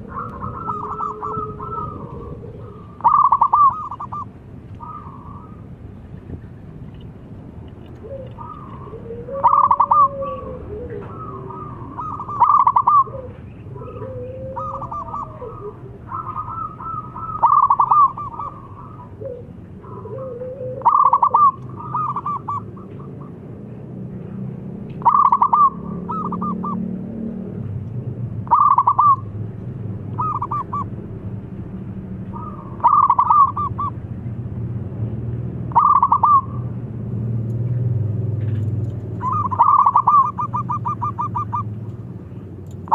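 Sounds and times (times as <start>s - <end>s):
dove cooing: 0.0s - 5.7s, 7.9s - 23.5s, 25.0s - 27.0s, 28.4s - 29.3s, 30.1s - 30.9s, 32.3s - 34.0s, 35.7s - 36.7s, 39.1s - 42.9s.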